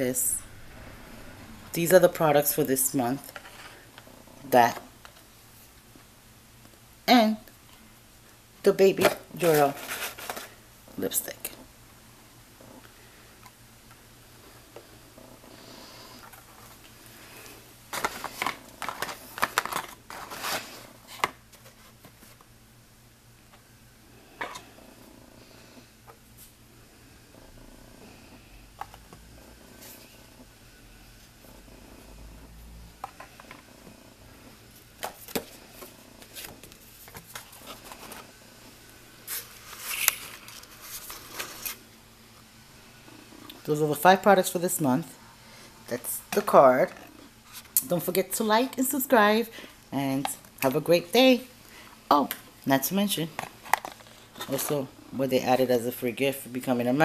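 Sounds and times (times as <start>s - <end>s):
rustling scrape of camera handling: 9.4s - 10.6s, 17.9s - 22.5s, 39.3s - 41.8s
cosmetic packaging clicks and rustles: 17.9s - 22.5s, 53.3s - 54.9s.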